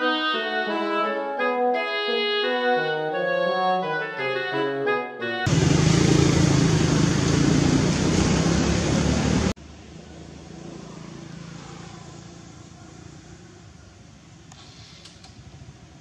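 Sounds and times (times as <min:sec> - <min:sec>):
loud rushing outdoor noise: 0:05.5 - 0:14.4
quiet steady outdoor background: 0:09.5 - 0:16.0.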